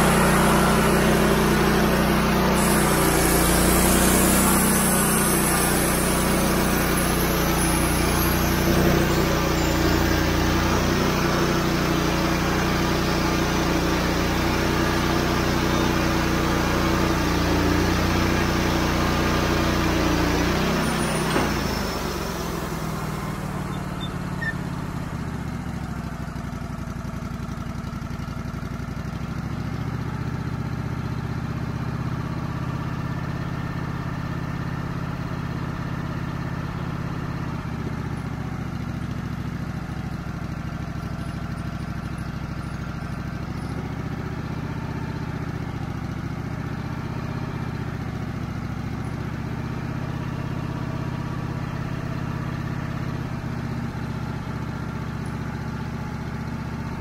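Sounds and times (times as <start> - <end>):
band saw cutting log: 0.0 - 25.3
sawmill engine running: 0.0 - 57.0.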